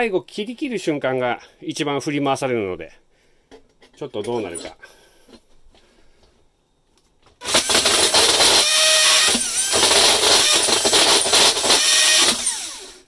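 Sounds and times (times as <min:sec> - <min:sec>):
drill with hole saw cutting wood: 0:07.4 - 0:13.0.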